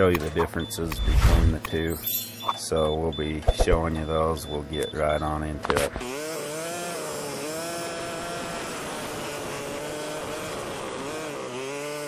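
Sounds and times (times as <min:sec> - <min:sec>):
atv engine running: 0:05.4 - 0:12.0.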